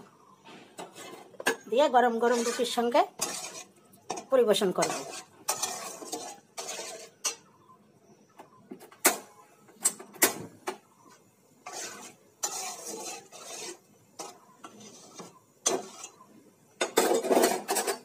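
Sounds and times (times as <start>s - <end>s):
spatula scraping metal pot: 0.6s - 7.7s, 11.0s - 18.0s
spatula clinking metal pot: 1.4s - 7.5s, 11.6s - 16.2s.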